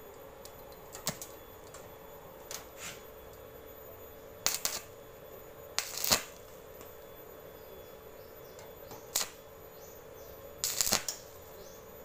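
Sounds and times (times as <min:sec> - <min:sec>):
faint hum: 0:00.0 - 0:12.0
crackling electric spark bursts: 0:04.4 - 0:05.0, 0:05.8 - 0:06.5, 0:08.9 - 0:09.5, 0:10.6 - 0:11.4.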